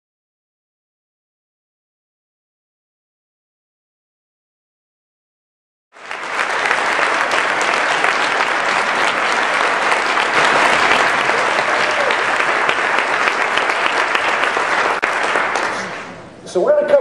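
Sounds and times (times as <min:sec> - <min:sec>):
large audience applauding: 0:05.9 - 0:16.2.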